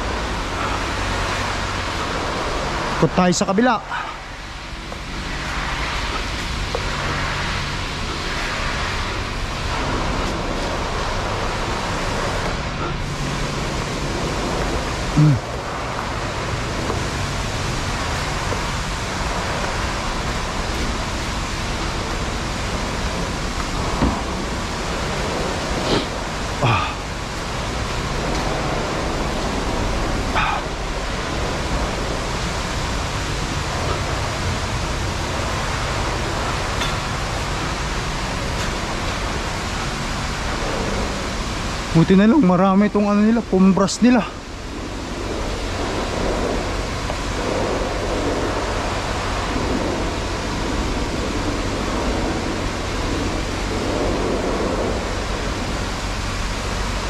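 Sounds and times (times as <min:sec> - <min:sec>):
pressure washer spraying water: 0:00.0 - 0:57.0.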